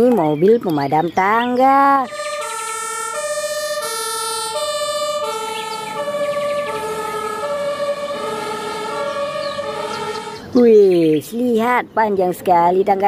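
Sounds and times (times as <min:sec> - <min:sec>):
two-tone fire engine siren: 0:01.9 - 0:10.6
second two-tone siren: 0:02.0 - 0:10.5.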